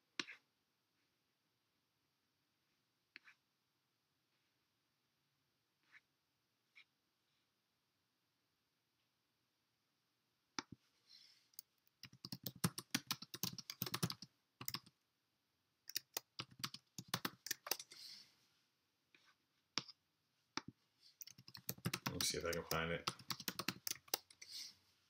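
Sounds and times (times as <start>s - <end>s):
typing on a computer keyboard: 12.0s - 14.9s, 15.9s - 17.9s, 21.2s - 24.4s.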